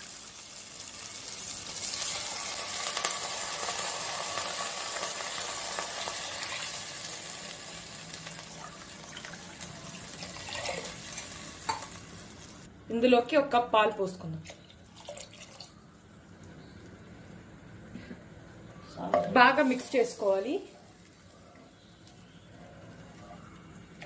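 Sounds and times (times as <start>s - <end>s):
water sizzling in hot pan: 0.0s - 12.7s, 19.4s - 21.3s.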